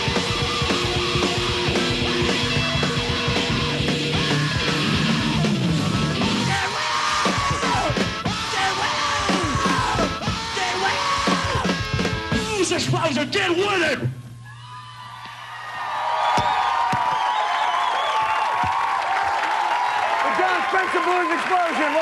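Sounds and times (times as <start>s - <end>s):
rock band playing: 0.0s - 14.2s
person yelling vocals: 6.4s - 11.7s.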